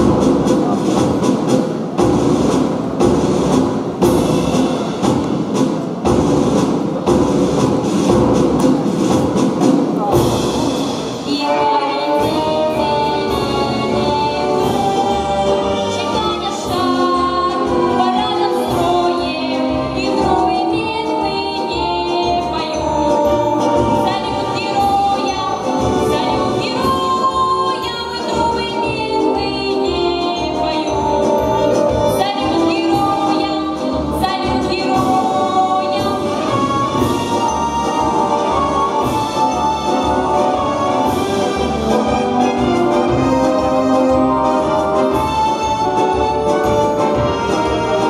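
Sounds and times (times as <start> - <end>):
backing track with steady beat: 0.0 - 48.0
girl singing pop vocal: 11.3 - 36.9.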